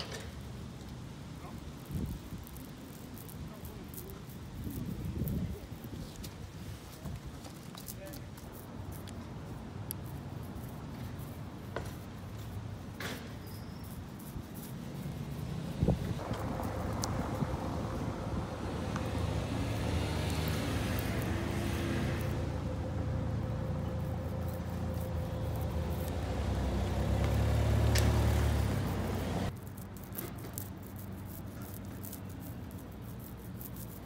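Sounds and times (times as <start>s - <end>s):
ink roller crackling: 0.0s - 34.0s
vehicle passing rumble: 14.3s - 34.0s.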